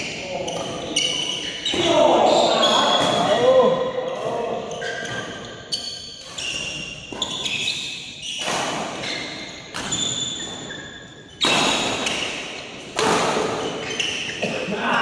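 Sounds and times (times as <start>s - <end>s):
shoes squeaking on court: 0.0s - 3.4s, 4.0s - 14.5s
rackets hitting shuttlecock: 4.1s - 14.4s.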